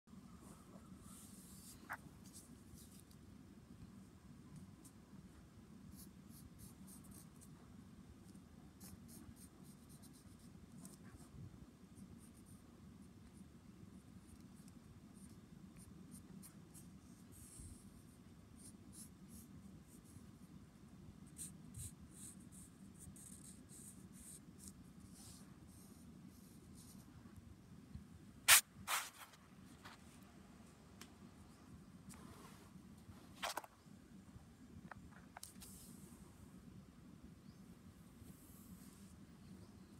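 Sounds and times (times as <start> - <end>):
pencil scratching on paper: 5.9 - 7.5, 8.8 - 11.3, 21.3 - 27.0.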